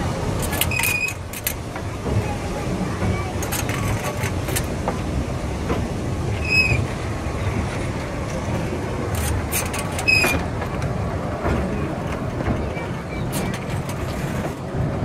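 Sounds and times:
train wheels clacking over rails: 0.0 - 15.0
high wheel squeals: 0.4 - 1.2, 6.3 - 7.0, 9.2 - 10.4.

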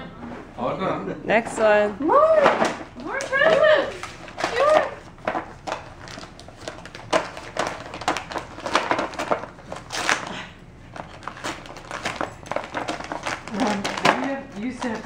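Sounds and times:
wrapping paper crinkling: 3.2 - 15.0.

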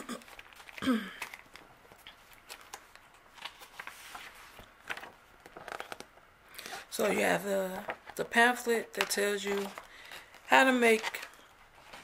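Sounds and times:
paper and cellophane rustling: 0.2 - 6.1, 6.9 - 12.0.

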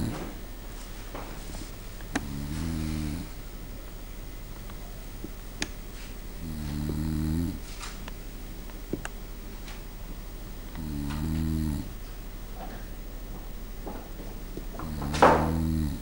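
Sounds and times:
person snoring: 0.0 - 0.3, 2.2 - 3.4, 6.4 - 7.7, 10.7 - 12.0, 14.8 - 16.0.

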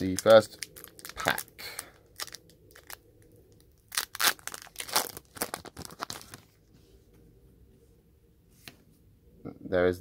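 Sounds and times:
foil wrapper tearing: 0.0 - 3.0, 3.6 - 6.4
wrapper crinkling: 0.0 - 6.6.

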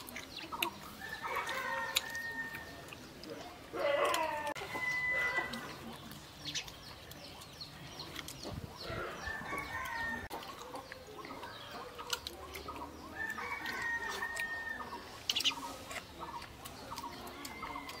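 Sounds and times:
chickens clucking: 0.0 - 18.0
chicken drawn-out calls: 3.7 - 5.9.

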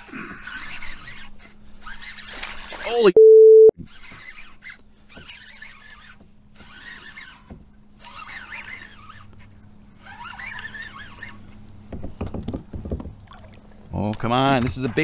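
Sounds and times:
fishing reel gears whirring: 0.0 - 2.8, 3.9 - 11.6.

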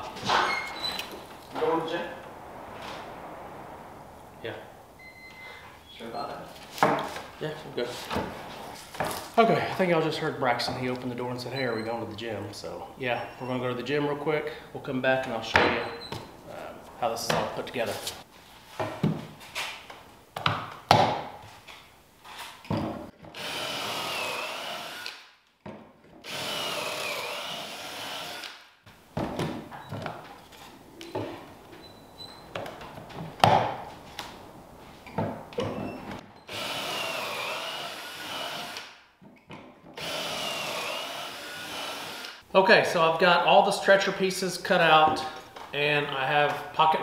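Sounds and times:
cordless drill whining: 23.3 - 25.2, 26.2 - 28.6, 36.5 - 38.9, 40.0 - 42.4.

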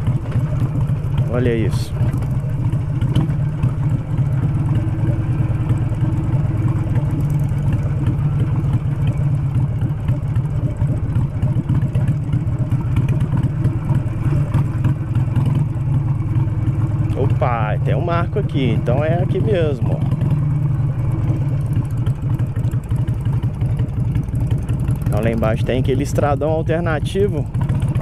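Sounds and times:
knocks and rattles on bumpy ground: 0.0 - 3.7
motorcycle engine running: 0.0 - 28.0.

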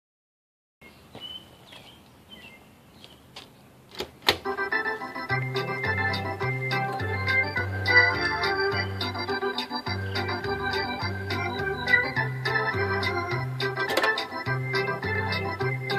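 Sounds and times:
organ music from speaker: 4.3 - 15.9.

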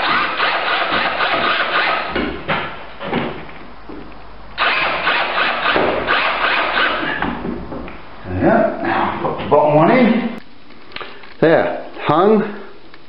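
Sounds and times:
drill driving screws: 0.0 - 2.2, 4.6 - 7.2.

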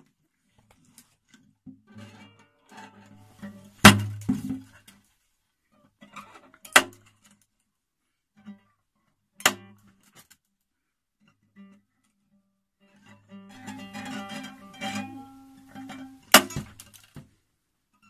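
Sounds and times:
faint guitar plucks: 11.5 - 16.7
guitar notes bending in pitch: 13.4 - 16.3.

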